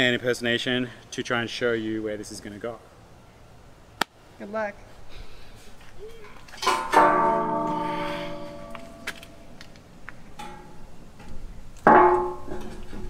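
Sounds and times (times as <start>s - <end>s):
metal bar clanging and ringing: 6.6s - 9.5s, 10.4s - 10.8s, 11.9s - 13.0s.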